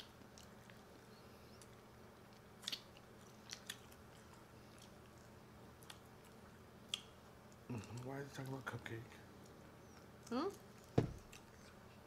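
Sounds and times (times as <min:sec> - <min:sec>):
faint steady hum: 0:00.0 - 0:12.0
crisp bites and mouth clicks: 0:02.3 - 0:05.1.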